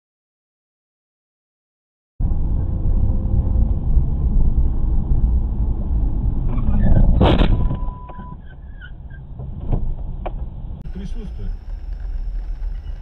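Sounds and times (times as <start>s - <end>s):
car engine and road rumble: 2.2s - 13.0s
car crash: 6.4s - 13.0s
steady beep: 7.8s - 8.4s.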